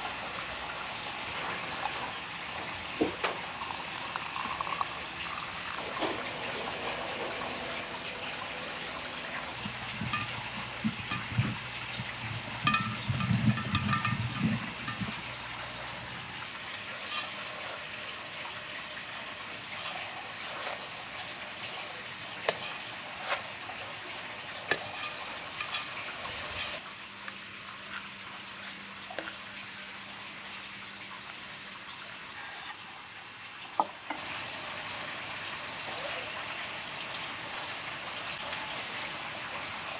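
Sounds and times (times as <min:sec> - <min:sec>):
liquid pouring into glass jar: 0:03.1 - 0:08.8, 0:09.4 - 0:16.0
sugar pouring: 0:03.2 - 0:15.8, 0:17.0 - 0:17.9, 0:19.5 - 0:21.8, 0:22.4 - 0:23.6, 0:24.7 - 0:28.4
clicks and taps against glass: 0:12.6 - 0:15.2.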